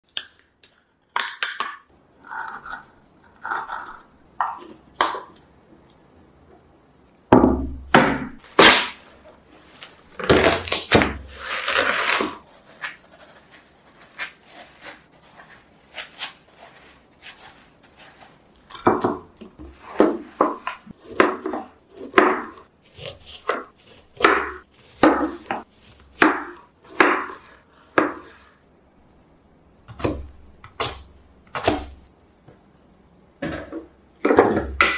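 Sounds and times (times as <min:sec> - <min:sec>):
knife cutting fruit on board: 0:14.0 - 0:28.6, 0:29.9 - 0:32.0.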